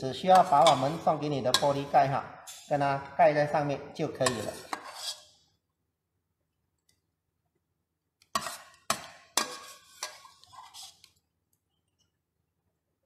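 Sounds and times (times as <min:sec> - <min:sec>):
metal ladle clinking in pot: 0:00.3 - 0:02.8
ladle scraping against ceramic bowl: 0:04.2 - 0:05.4, 0:08.3 - 0:11.1.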